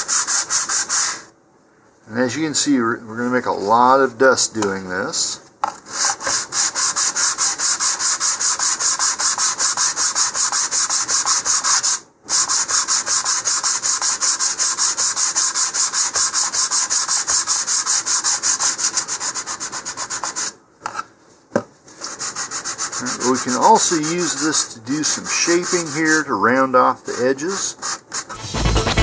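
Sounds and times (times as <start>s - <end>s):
hand sanding back and forth: 0.0s - 1.3s, 5.9s - 20.6s, 22.0s - 29.0s.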